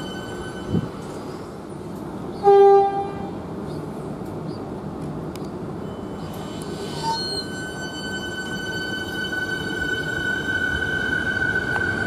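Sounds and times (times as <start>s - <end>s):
electric train rumbling on rails: 0.0s - 12.0s
train horn toot: 2.4s - 3.4s, 6.2s - 12.0s.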